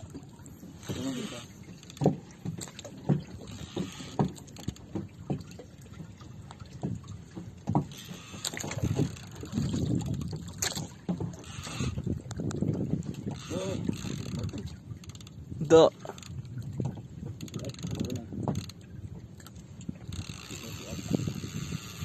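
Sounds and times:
low knocks on hull: 0.0 - 22.0
water slapping against boat hull: 0.0 - 22.0
wind on microphone: 8.4 - 22.0.

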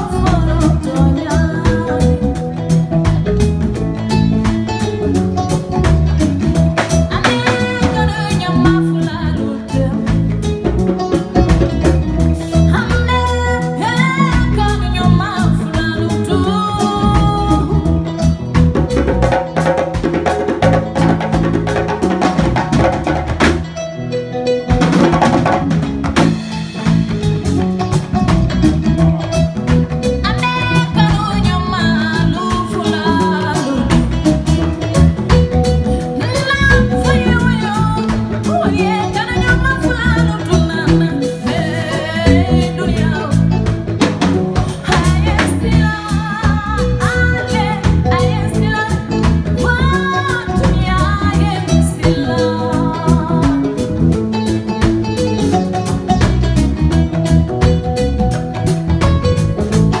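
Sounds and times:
woman singing: 0.0 - 3.0, 6.8 - 11.8, 12.5 - 19.6, 30.0 - 54.8
band playing kora bass and drums: 0.0 - 60.0.

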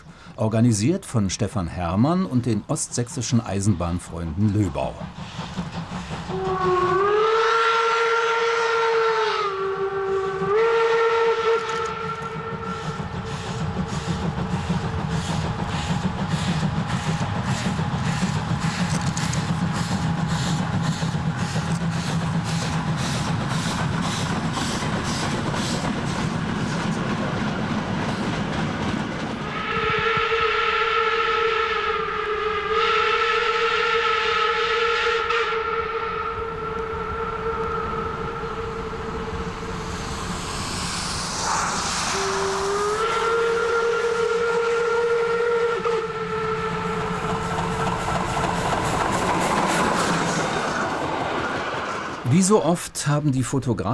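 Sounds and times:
steam locomotive exhaust chuffs: 4.1 - 52.5
steam locomotive whistle: 6.3 - 14.3, 29.4 - 48.4.

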